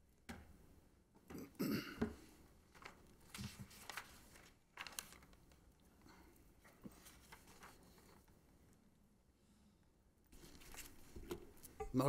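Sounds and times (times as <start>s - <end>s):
faint rustling and handling: 2.1s - 9.0s, 10.3s - 12.0s.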